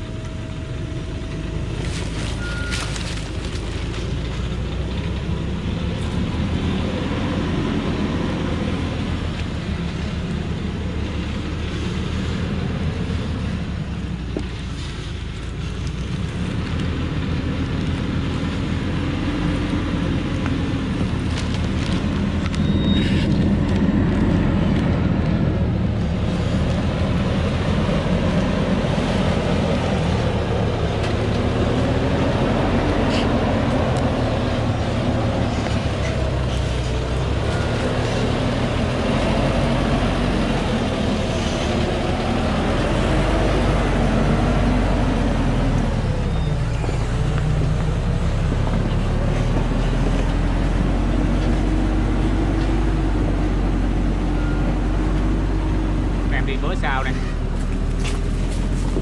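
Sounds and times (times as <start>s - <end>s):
diesel truck engine under load: 0.0s - 59.0s.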